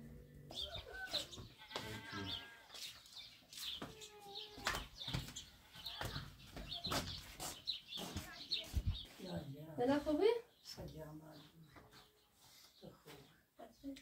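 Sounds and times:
small birds chirping: 0:00.4 - 0:14.0
goats bleating: 0:01.6 - 0:02.8.

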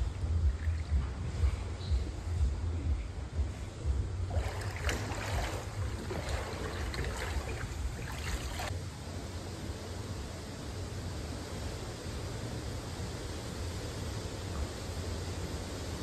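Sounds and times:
steady low rumble: 0:00.0 - 0:16.0
water sloshing from wading: 0:00.2 - 0:01.5, 0:04.2 - 0:08.8.

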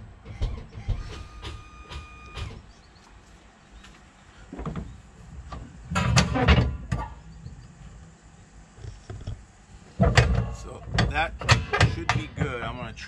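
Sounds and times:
hitch knock: 0:10.0 - 0:12.7
metallic clatter and rattle: 0:10.0 - 0:12.7.

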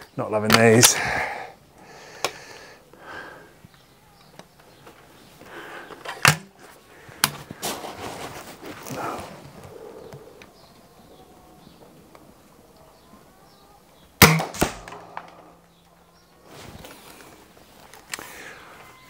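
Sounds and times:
air rifle barrel snapping shut: 0:06.0 - 0:06.5, 0:14.2 - 0:15.4.

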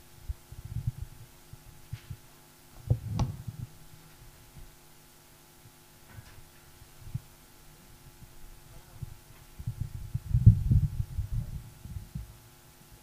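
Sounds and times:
faint sound system hum: 0:00.0 - 0:13.0
microphone handling thumps: 0:02.8 - 0:03.8, 0:09.0 - 0:12.3.

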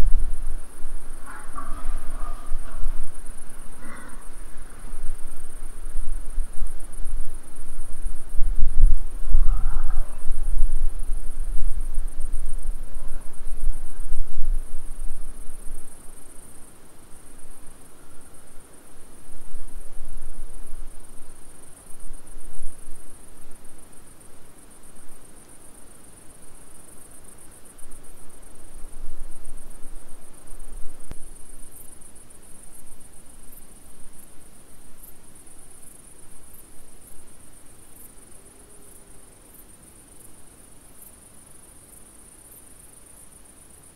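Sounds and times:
crickets trilling: 0:00.0 - 0:43.9.

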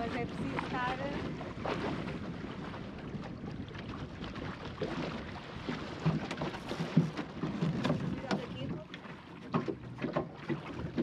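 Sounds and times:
wind on the microphone: 0:00.0 - 0:08.9
water rushing along a hull: 0:00.0 - 0:11.0
knocks on a boat: 0:05.0 - 0:11.0.

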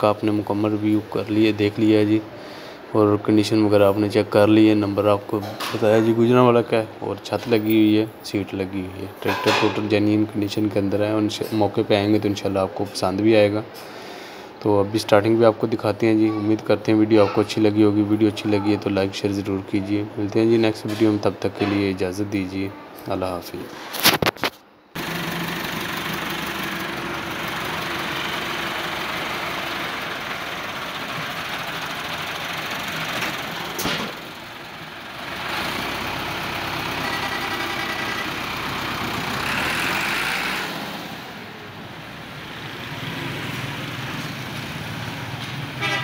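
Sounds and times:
tractor diesel engine running: 0:25.0 - 0:46.0.

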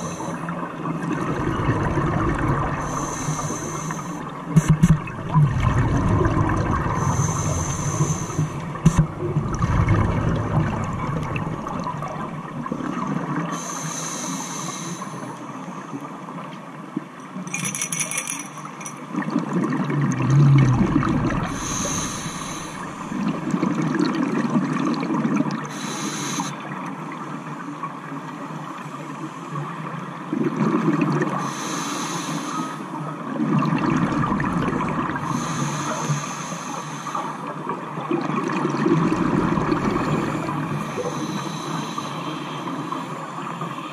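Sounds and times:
exhaled bubbles: 0:00.0 - 0:03.9, 0:04.5 - 0:13.5, 0:19.1 - 0:25.7, 0:33.3 - 0:35.4, 0:38.0 - 0:41.3
regulator hissing inhale: 0:02.8 - 0:04.2, 0:07.0 - 0:08.9, 0:13.6 - 0:15.3, 0:21.5 - 0:23.1, 0:25.7 - 0:26.6, 0:31.4 - 0:32.8, 0:35.2 - 0:37.5, 0:40.3 - 0:43.4.

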